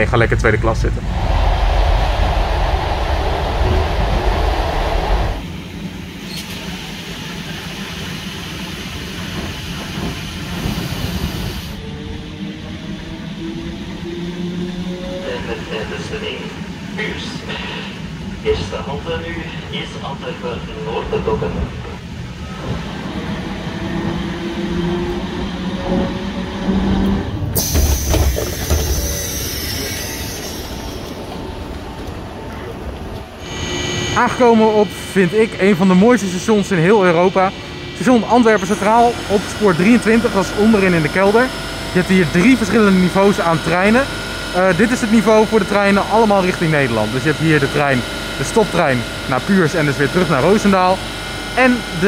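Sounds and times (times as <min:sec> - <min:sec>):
rail noise: 0:00.0 - 0:52.0
train rumbling: 0:00.0 - 0:52.0
low hum: 0:00.2 - 0:06.3, 0:21.2 - 0:52.0.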